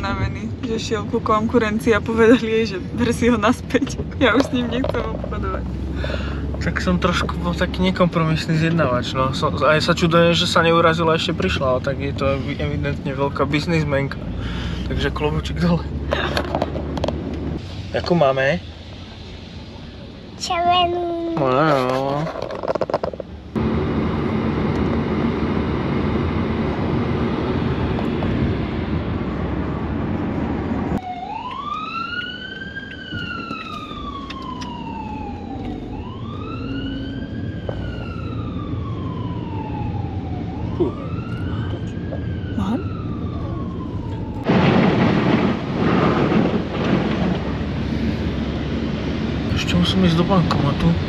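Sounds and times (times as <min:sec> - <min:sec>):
siren wailing: 0:31.0 - 0:47.4.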